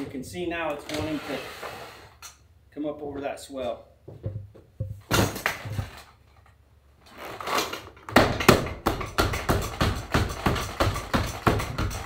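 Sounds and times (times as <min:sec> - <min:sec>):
background music with percussive beat: 0:08.3 - 0:12.0.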